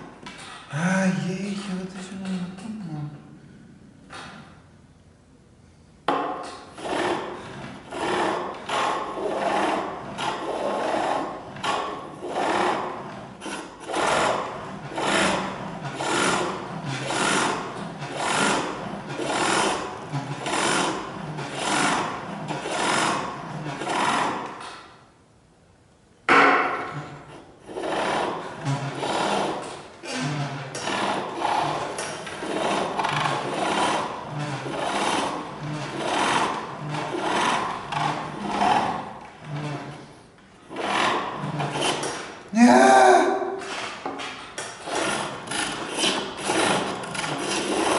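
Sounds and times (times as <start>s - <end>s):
chisel cutting wood on lathe: 6.1s - 24.8s, 26.4s - 40.0s, 40.7s - 42.4s, 43.7s - 47.9s.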